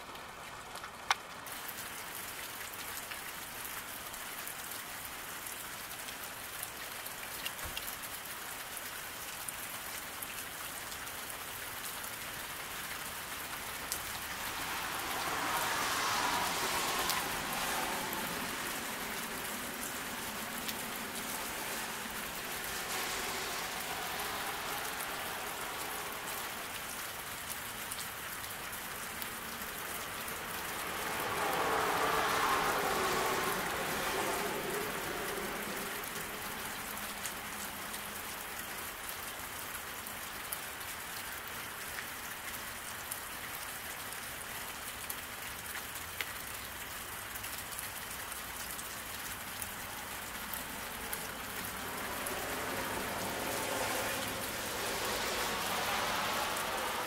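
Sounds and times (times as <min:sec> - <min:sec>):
rain falling on road: 0:00.0 - 0:57.0
water drips ticking: 0:00.1 - 0:53.8.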